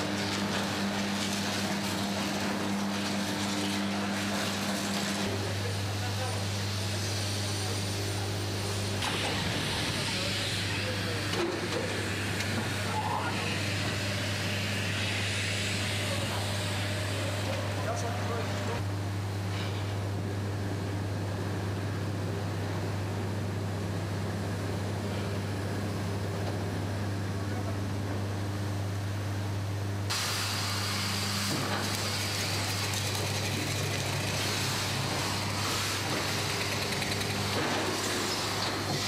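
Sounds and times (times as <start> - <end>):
industrial machinery drone: 0.0 - 18.9, 30.0 - 39.0.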